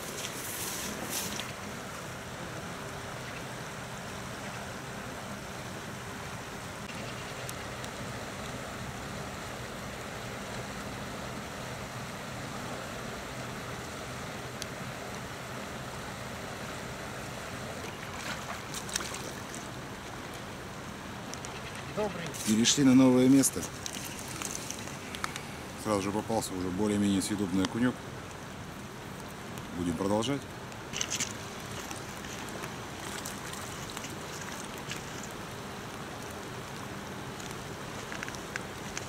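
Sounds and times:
river running over stones: 0:00.0 - 0:09.1, 0:14.4 - 0:39.0.

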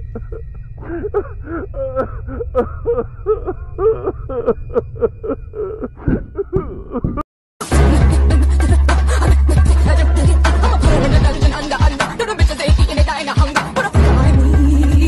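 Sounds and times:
person vocalizing syllables: 0:05.6 - 0:07.2
music with low bass: 0:07.0 - 0:15.0.

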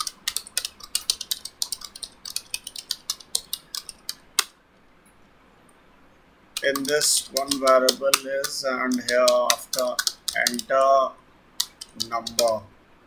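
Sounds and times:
keyboard typing: 0:00.0 - 0:04.5, 0:06.6 - 0:10.9, 0:11.6 - 0:12.6.

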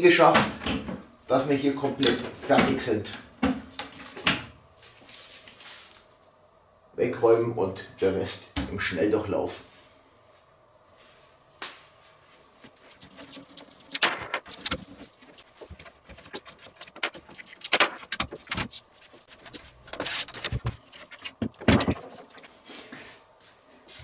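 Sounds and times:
computer case parts clicking and rattling: 0:12.7 - 0:22.5.

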